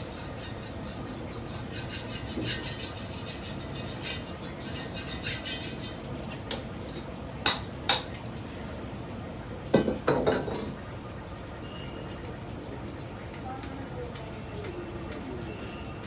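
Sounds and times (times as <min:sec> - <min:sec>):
steady kitchen hum: 0:00.0 - 0:16.0
metal ladle clanking on pots: 0:09.8 - 0:10.8.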